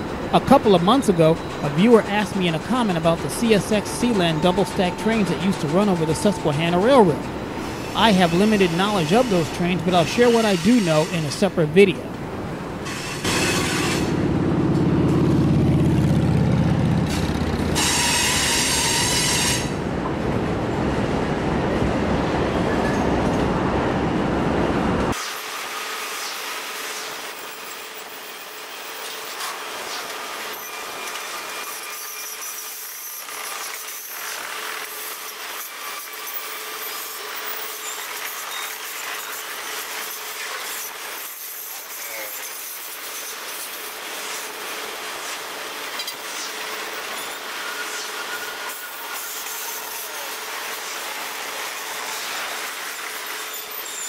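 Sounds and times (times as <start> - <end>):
freight train rolling past: 0.0 - 25.2
high-pitched squeal: 0.4 - 12.1, 12.8 - 19.8.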